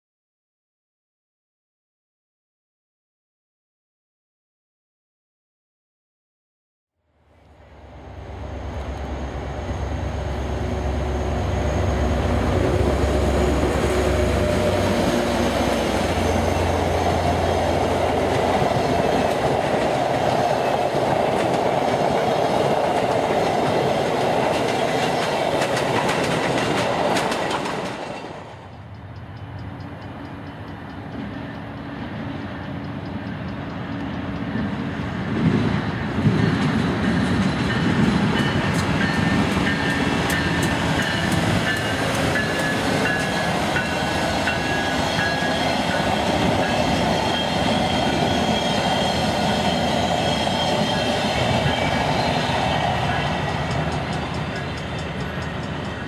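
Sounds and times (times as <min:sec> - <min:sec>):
diesel locomotive drone: 0:07.1 - 0:56.0
train wheels clattering: 0:13.0 - 0:56.0.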